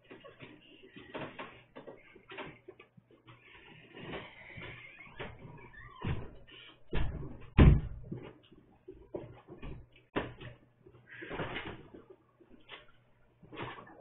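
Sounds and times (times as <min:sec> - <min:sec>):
footsteps and thumps on hard floor: 0:04.1 - 0:10.6.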